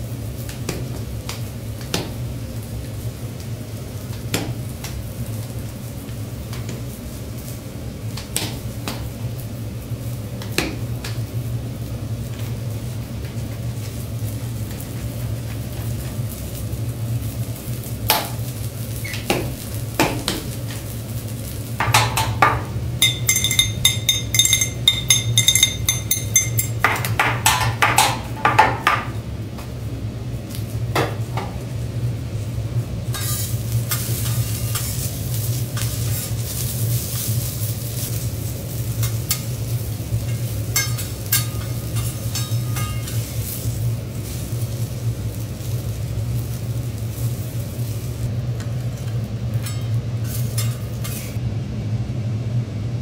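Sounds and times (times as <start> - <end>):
steady low hum: 0.0 - 53.0
ringing metallic tone: 23.0 - 26.8
metal spatulas scraping on griddle: 33.1 - 44.6, 48.6 - 51.4.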